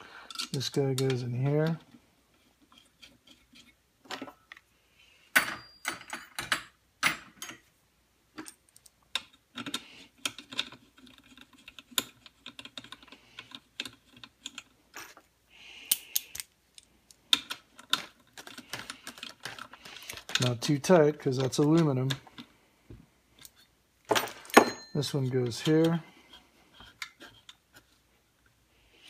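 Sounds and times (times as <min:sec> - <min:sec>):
small metal parts clicking: 0:15.8 - 0:20.6.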